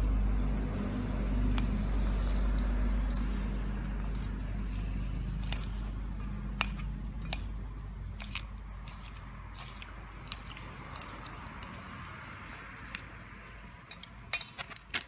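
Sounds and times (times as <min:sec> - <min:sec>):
chopsticks clicking on metal bowl: 0:03.1 - 0:03.4, 0:05.4 - 0:05.8, 0:06.6 - 0:07.5, 0:08.2 - 0:11.9.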